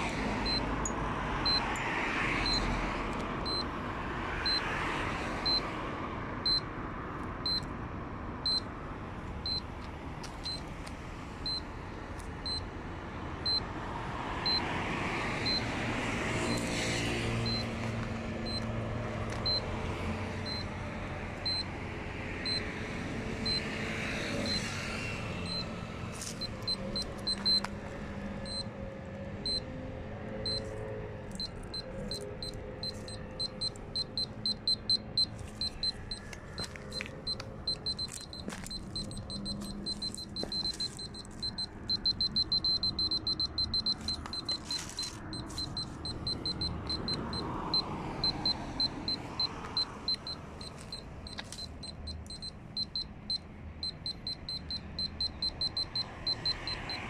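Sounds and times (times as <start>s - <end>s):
radiation meter beeping: 0.0s - 2.8s, 3.4s - 3.7s, 4.4s - 4.8s, 5.4s - 5.7s, 6.4s - 6.7s, 7.4s - 7.7s, 8.4s - 8.7s, 9.4s - 9.7s, 10.4s - 10.7s, 11.4s - 11.7s, 12.4s - 12.6s, 13.4s - 13.6s, 14.4s - 14.7s, 15.4s - 15.7s, 17.4s - 17.8s, 18.4s - 18.7s, 19.3s - 19.7s, 20.4s - 20.7s, 21.4s - 21.7s, 22.4s - 22.7s, 23.4s - 23.8s, 24.4s - 24.7s, 25.4s - 27.8s, 28.4s - 28.7s, 29.4s - 29.7s, 30.4s - 57.0s.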